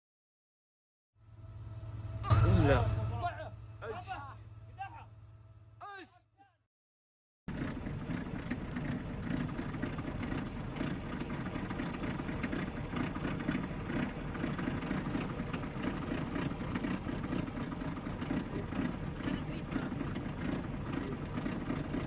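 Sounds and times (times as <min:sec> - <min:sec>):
truck engine idling: 0:07.5 - 0:22.0.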